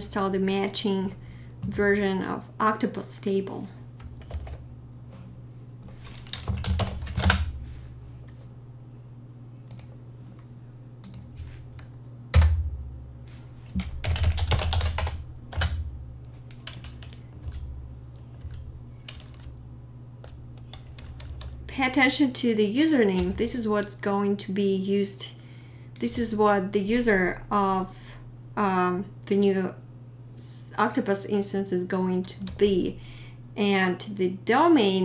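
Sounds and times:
steady low hum: 0:00.0 - 0:35.0
typing on computer keyboard: 0:04.0 - 0:04.6, 0:06.2 - 0:07.4, 0:13.8 - 0:15.8, 0:16.4 - 0:17.6, 0:18.3 - 0:19.5, 0:20.2 - 0:21.6.

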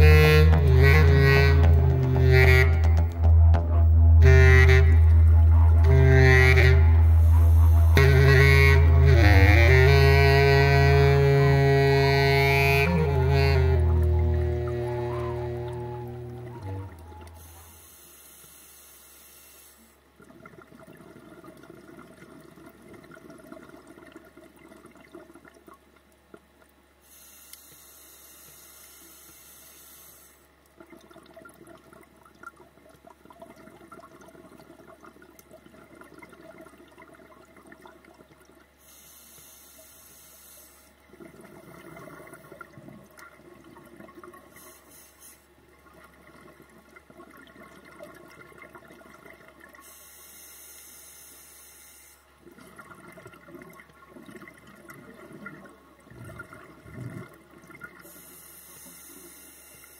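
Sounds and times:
exhaled bubbles gurgling: 0:00.0 - 0:17.9, 0:20.0 - 0:26.8, 0:30.5 - 0:39.6, 0:40.9 - 0:50.1, 0:52.3 - 0:59.9
regulator inhalation hiss: 0:27.0 - 0:30.4, 0:38.8 - 0:40.9, 0:44.6 - 0:45.4.

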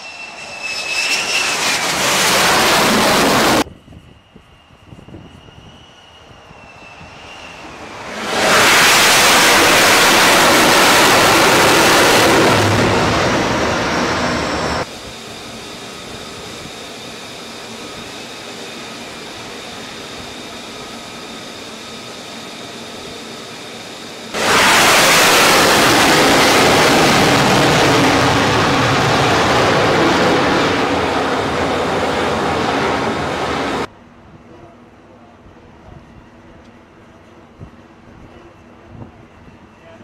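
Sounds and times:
quieter steady rush with whistling: 0:00.0 - 0:02.0, 0:03.3 - 0:25.1
loud jet engine rushing: 0:00.0 - 0:33.9.

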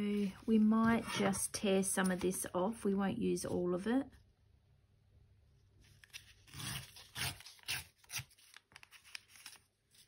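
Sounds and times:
paper tearing: 0:06.0 - 0:09.6.

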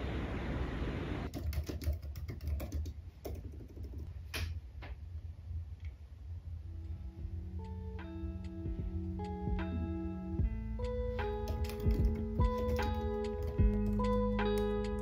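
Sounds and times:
wind and rain noise: 0:00.0 - 0:01.3
laptop keyboard typing: 0:01.3 - 0:04.1, 0:11.4 - 0:15.0.

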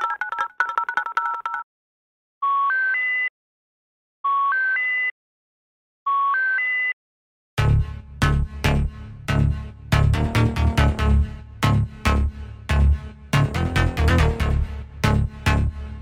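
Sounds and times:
electronic dance music: 0:08.4 - 0:15.7.

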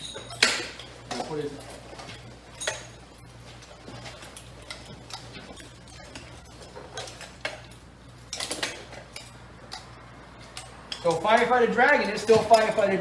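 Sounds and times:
harness buckles clinking and rattling: 0:00.0 - 0:13.0.

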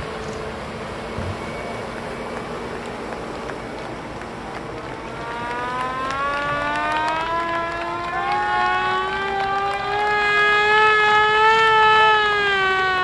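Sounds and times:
tractor engine whine: 0:00.0 - 0:13.0.

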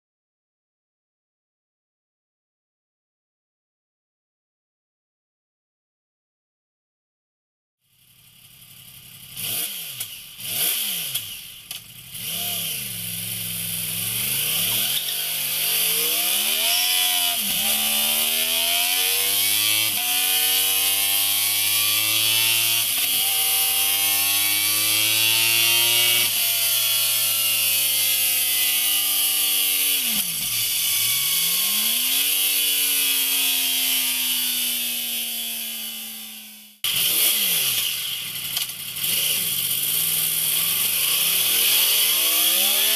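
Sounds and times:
motorcycle engine revving: 0:07.9 - 0:42.9.

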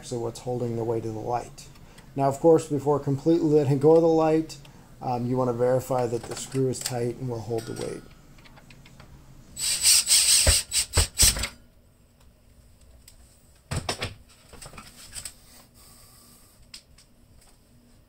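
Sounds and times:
cordless drill driving screw: 0:09.6 - 0:11.4.

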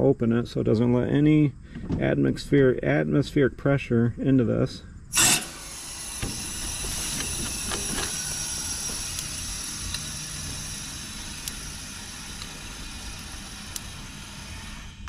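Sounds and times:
refrigerant hissing through valve: 0:05.1 - 0:15.0.

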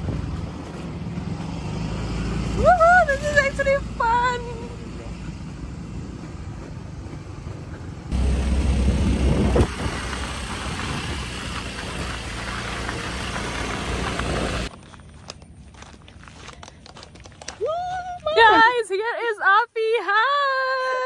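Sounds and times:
wind buffeting microphone: 0:05.4 - 0:14.7
scooter engine running: 0:07.6 - 0:14.7.

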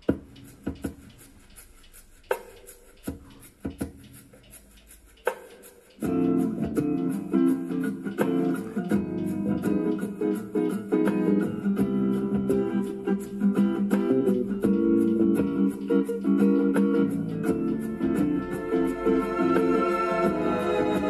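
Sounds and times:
guitar music: 0:06.0 - 0:21.0.

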